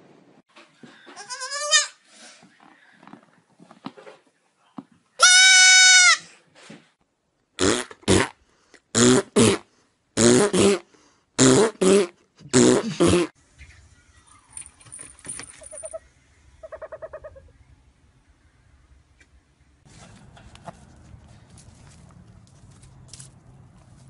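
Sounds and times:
harsh animal calls: 15.6s - 17.6s.

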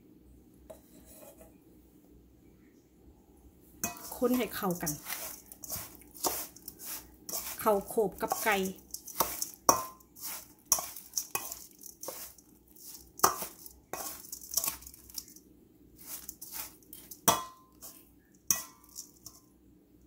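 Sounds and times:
metal spoon scraping steel bowl: 3.8s - 15.4s, 16.0s - 19.4s.

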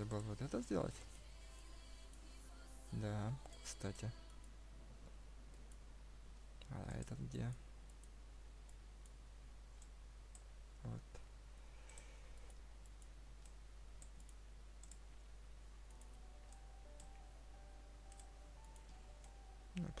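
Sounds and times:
computer mouse clicks: 6.6s - 10.5s, 11.8s - 15.1s, 18.1s - 19.4s.

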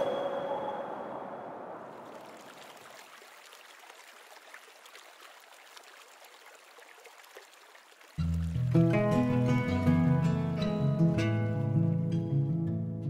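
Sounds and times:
river water over stones: 1.8s - 9.0s.

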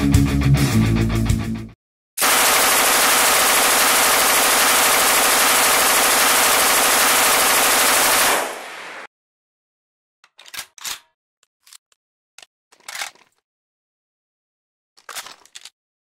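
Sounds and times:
heavy metal guitar music: 0.0s - 1.6s
machine gun firing long burst: 2.2s - 9.1s.

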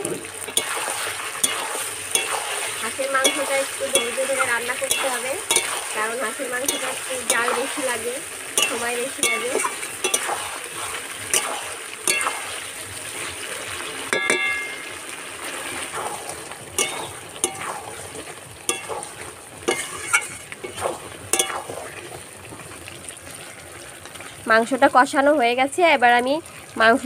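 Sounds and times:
meat sizzling in a pan: 0.0s - 27.0s
metal spatula scraping: 0.4s - 12.7s, 15.7s - 22.1s
spatula clinking against pan: 1.4s - 5.9s, 6.6s - 7.8s, 8.5s - 10.5s, 11.3s - 12.6s, 14.1s - 15.0s, 16.8s - 17.9s, 18.6s - 21.8s.

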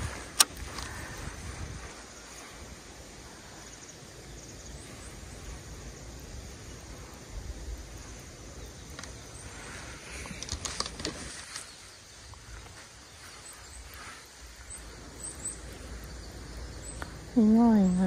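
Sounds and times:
wind rumble on microphone: 0.0s - 18.0s
clicks and rustling: 10.1s - 12.8s
faint bird chirps: 11.4s - 18.0s.

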